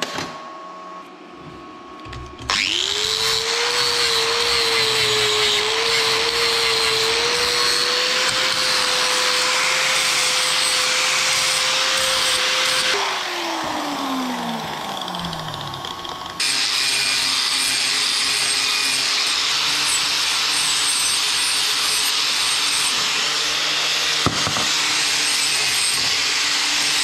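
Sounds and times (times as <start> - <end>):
angle grinder coasting down: 2.5 - 16.9
angle grinder grinding metal rod: 2.5 - 27.0.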